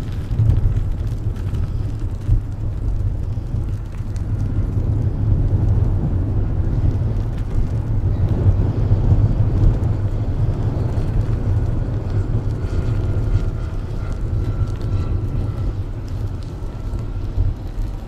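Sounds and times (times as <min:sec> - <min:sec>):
propeller drive whine: 0:00.0 - 0:18.0
wind rumble on microphone: 0:00.0 - 0:18.0
model airplane droning: 0:06.0 - 0:18.0.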